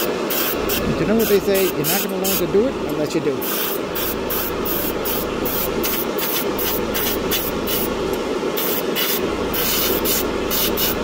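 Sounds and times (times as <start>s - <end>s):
airbrush hissing in bursts: 0.0s - 2.6s, 3.4s - 11.0s
steady low hum: 0.0s - 11.0s.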